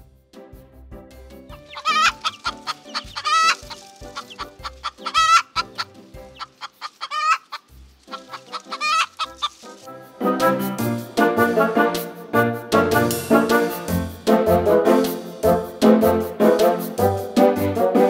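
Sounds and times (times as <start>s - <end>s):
hen wavering calls: 1.5s - 9.8s
chickens clucking: 1.5s - 9.9s.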